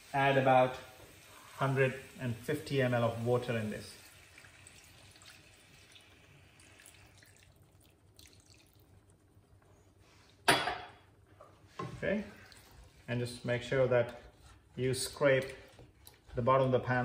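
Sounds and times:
water pouring and splashing: 0.0 - 9.3, 12.0 - 13.4
wooden spoon stirring: 11.3 - 17.0.

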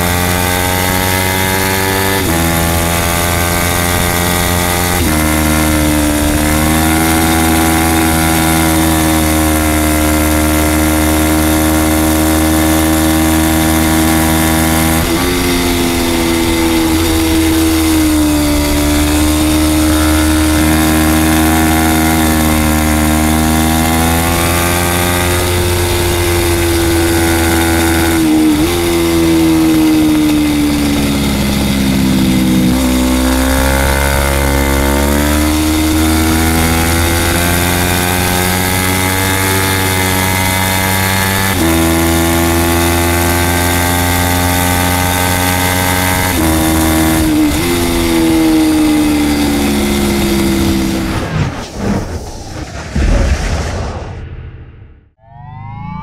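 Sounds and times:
motorcycle engine at high revs: 0.0 - 51.3
wind rushing: 50.4 - 56.0.

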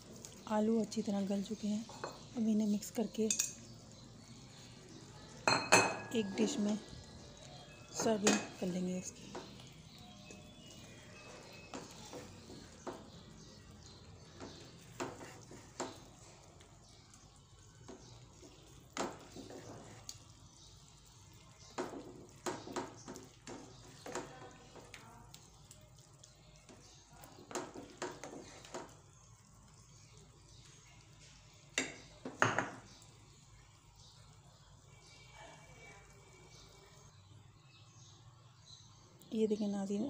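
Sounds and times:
spatula scraping frying pan: 14.0 - 16.4, 18.4 - 20.2.

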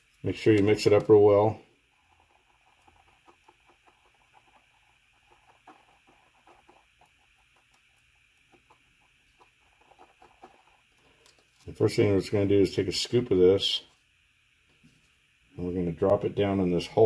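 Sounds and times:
stir stick clicking and scraping: 0.0 - 11.8.

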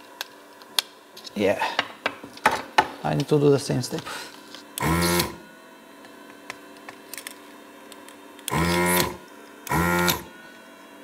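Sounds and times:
desoldering vacuum pump bursts: 4.0 - 5.5, 8.4 - 10.4.

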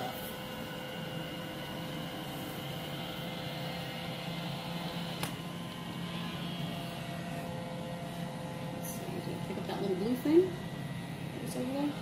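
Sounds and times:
robot vacuum running on carpet: 0.0 - 7.7.

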